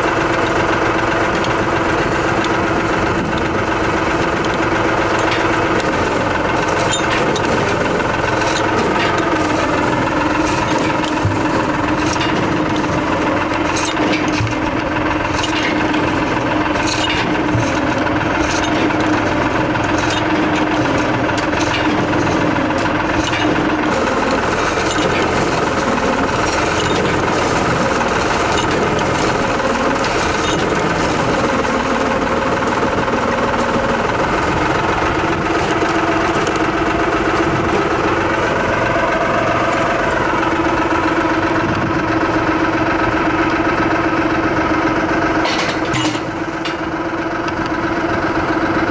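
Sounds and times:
drilling rig engine running: 0.0 - 48.9
sharp metallic knocks: 45.4 - 46.9.

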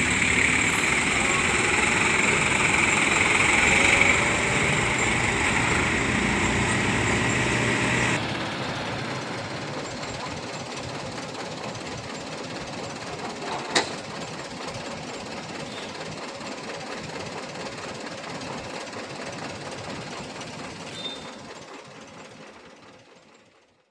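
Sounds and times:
road hum: 0.0 - 10.4
truck engine knocking: 0.0 - 23.7.

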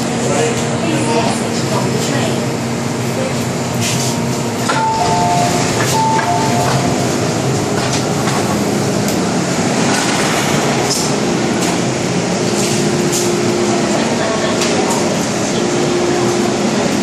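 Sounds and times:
train standing noise: 3.2 - 17.0
two-tone train door chime: 4.6 - 7.2.

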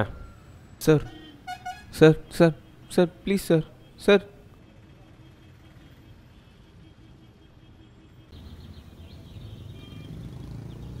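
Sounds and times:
distant road traffic rumble: 0.0 - 11.0
birds chirping: 8.3 - 11.0.

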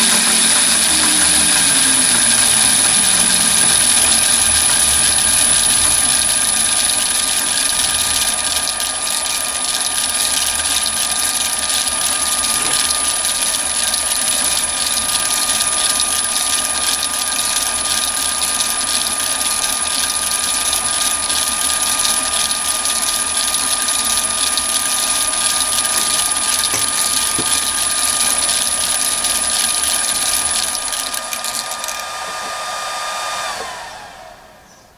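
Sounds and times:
lathe motor and belt whirring: 0.0 - 34.9.

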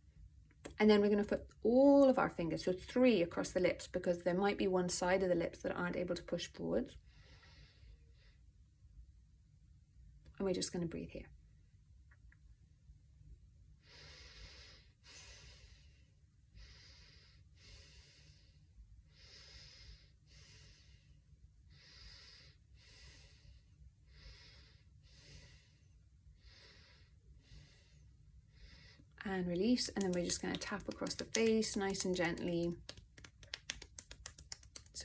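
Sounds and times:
slow breathing through nose: 13.8 - 29.1.

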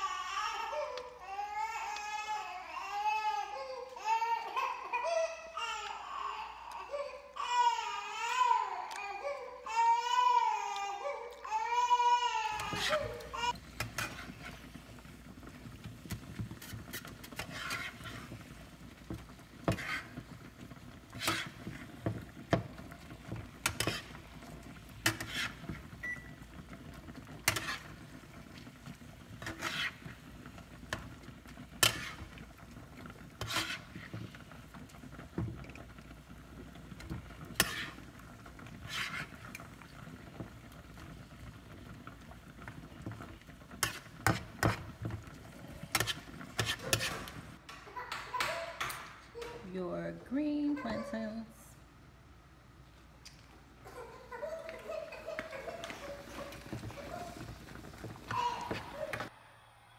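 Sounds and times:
utensil scraping a frying pan: 12.4 - 41.7, 42.6 - 47.6, 55.6 - 59.3.

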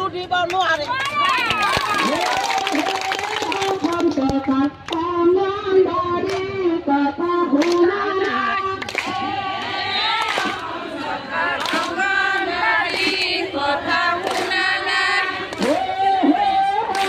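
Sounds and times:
women singing in unison: 1.8 - 17.0
sharp hand claps: 7.6 - 9.2, 10.2 - 10.7, 11.6 - 12.0, 14.2 - 14.6, 15.5 - 15.9, 16.8 - 17.0.

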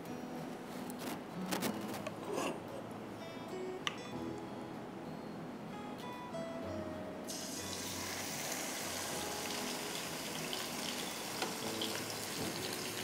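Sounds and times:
meat sizzling in oil: 7.3 - 13.0.

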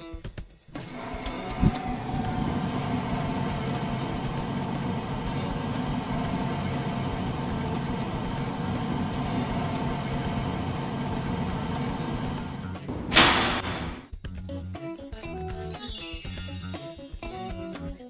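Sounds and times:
low mechanical hum: 0.8 - 13.1.

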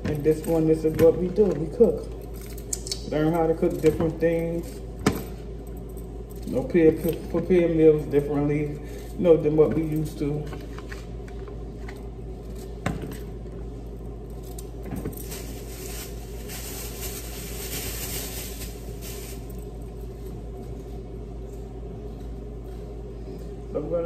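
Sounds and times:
steady low hum: 0.0 - 24.0
plastic bag rustling: 15.0 - 20.3.

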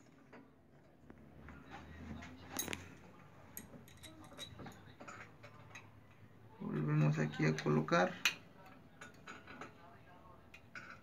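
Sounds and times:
light metallic clicks of small parts: 3.6 - 6.2.

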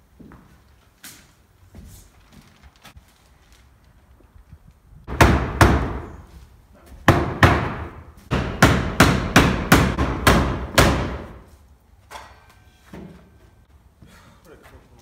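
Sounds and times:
hammer striking wooden door jamb: 5.1 - 6.1, 7.1 - 11.4.

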